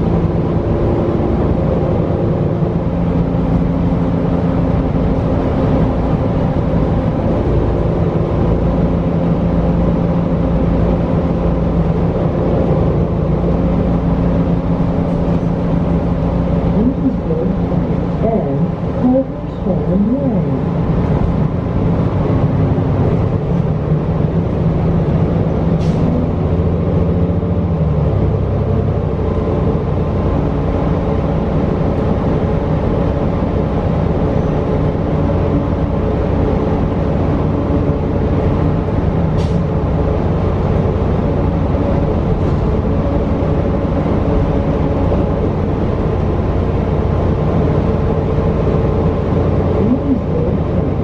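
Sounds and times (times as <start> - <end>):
bus diesel engine running: 0.0 - 51.0.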